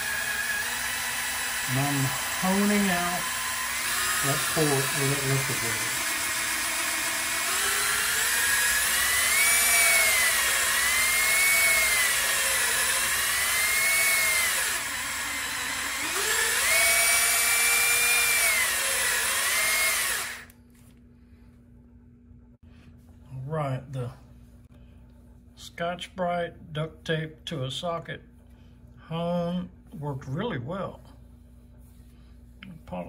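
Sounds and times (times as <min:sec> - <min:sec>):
power drill motor whining: 0:00.0 - 0:20.6.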